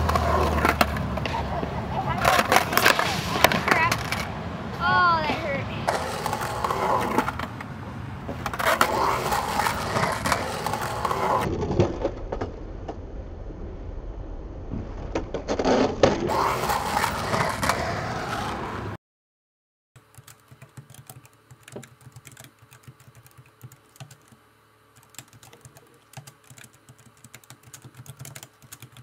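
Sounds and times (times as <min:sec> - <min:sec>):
skateboard rolling and clattering: 0:00.0 - 0:04.4, 0:05.9 - 0:13.3, 0:14.5 - 0:19.0
laptop keyboard typing: 0:20.0 - 0:29.0.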